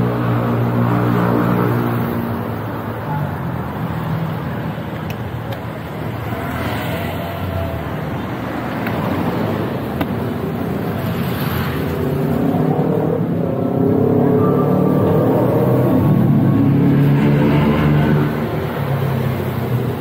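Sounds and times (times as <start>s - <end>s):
road noise: 0.0s - 20.0s
traffic: 0.0s - 20.0s.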